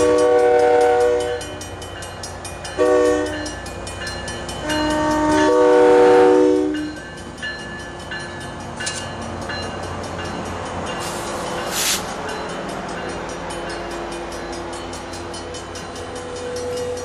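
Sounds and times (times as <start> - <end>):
diesel locomotive horn: 0.0 - 1.6, 2.8 - 3.6, 4.6 - 6.9
train rumbling past: 0.0 - 17.0
short hiss: 11.0 - 12.2.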